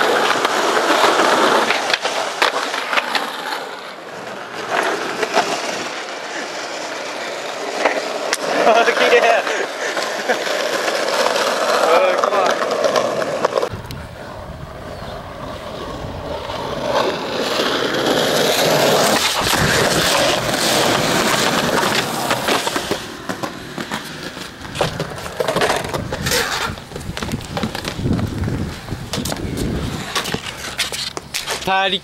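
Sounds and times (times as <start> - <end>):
skateboard clacking on ground: 0.0 - 14.0, 15.9 - 32.0
skateboard wheels rolling on concrete: 0.0 - 32.0.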